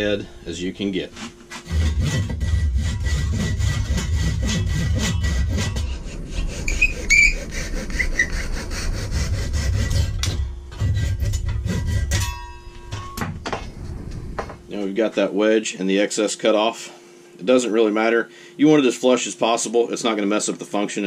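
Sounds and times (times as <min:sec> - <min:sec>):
hand saw cutting wood: 0:01.1 - 0:12.3.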